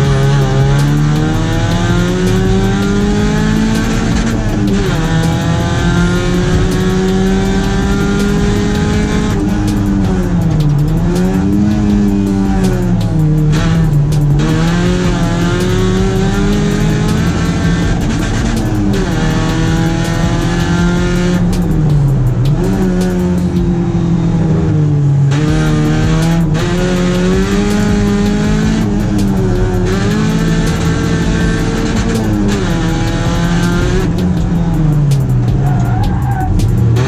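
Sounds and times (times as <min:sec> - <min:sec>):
rally car engine revving: 0:00.0 - 0:37.0.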